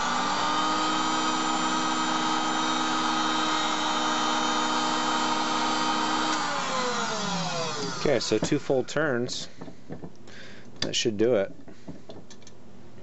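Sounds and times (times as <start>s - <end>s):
lens groover motor whine: 6.2s - 8.3s.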